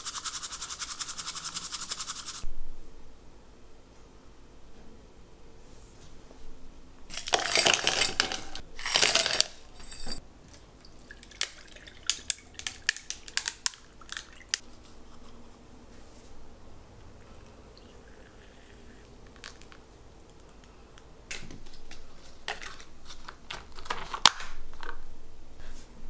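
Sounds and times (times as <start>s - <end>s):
dishes clinking: 7.1s - 10.2s.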